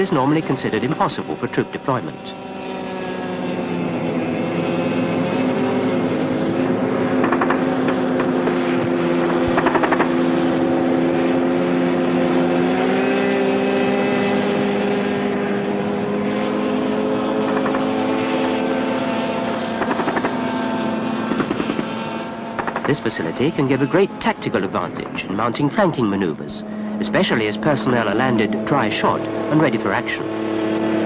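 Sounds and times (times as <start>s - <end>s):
hovercraft engine and propeller drone: 0.0s - 31.0s
rapid clicking bursts: 7.2s - 8.3s, 9.5s - 10.1s, 19.8s - 20.4s, 21.3s - 21.9s, 22.6s - 23.0s.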